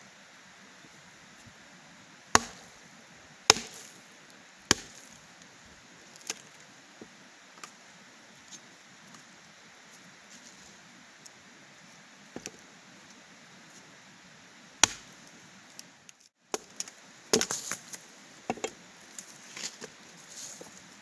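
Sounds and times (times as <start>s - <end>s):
blade chopping firewood: 2.3s - 2.7s, 3.5s - 4.0s, 4.7s - 5.1s, 14.8s - 15.1s, 16.5s - 19.8s.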